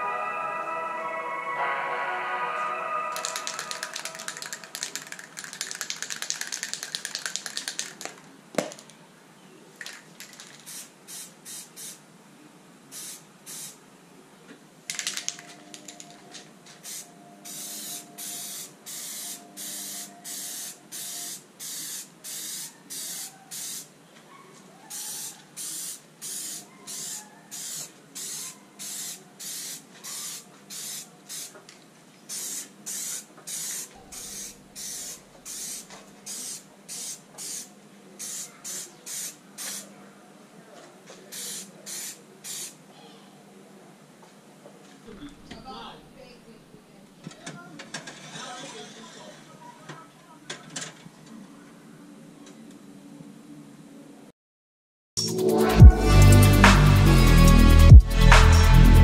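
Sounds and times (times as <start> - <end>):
spray-paint can hissing: 3.2 - 8.8, 9.8 - 12.0, 12.9 - 13.8, 14.9 - 16.0, 16.8 - 23.9, 24.9 - 31.6, 32.3 - 39.9, 41.3 - 42.8.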